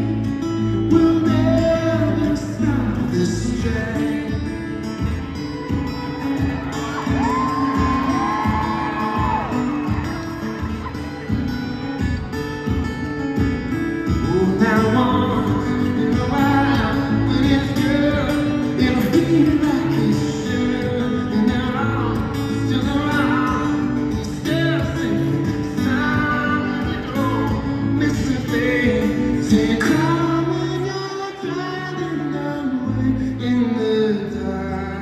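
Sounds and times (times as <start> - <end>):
man singing: 0.0 - 5.6, 14.0 - 35.0
acoustic guitar: 0.0 - 35.0.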